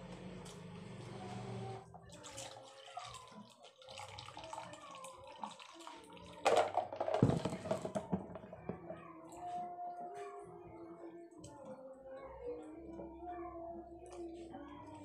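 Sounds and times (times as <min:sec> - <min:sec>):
drink pouring into paper cup: 0:02.1 - 0:06.5.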